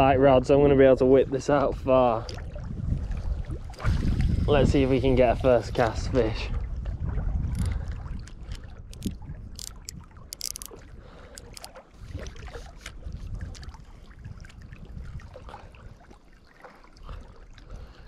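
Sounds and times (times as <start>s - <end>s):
wind rumble on microphone: 0.0s - 16.2s
fishing reel gears ticking: 8.9s - 10.8s, 11.4s - 11.7s
sharp clicks: 8.9s - 10.8s, 11.4s - 11.7s.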